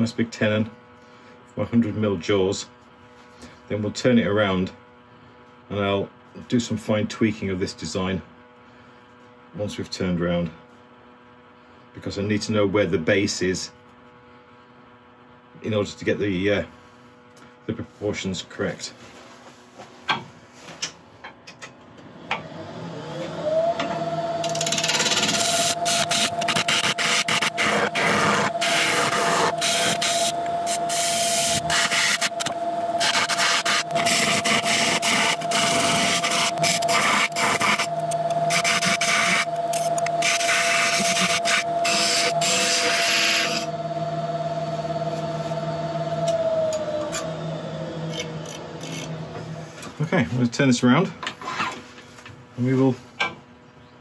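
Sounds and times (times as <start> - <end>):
wood lathe whining: 22.0 - 49.8
turning tool cutting wood: 22.4 - 49.6.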